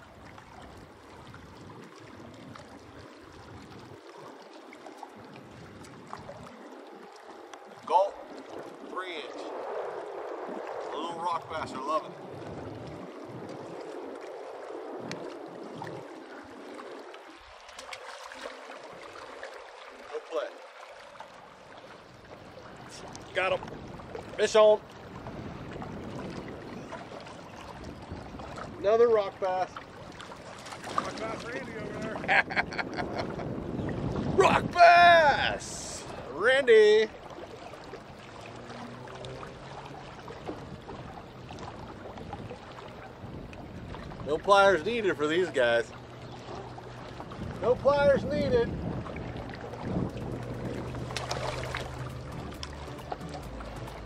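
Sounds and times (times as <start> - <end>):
lake water lapping on rocks: 0.0 - 54.0
fish splashing into water: 15.1 - 21.4, 29.8 - 31.5, 49.3 - 53.7.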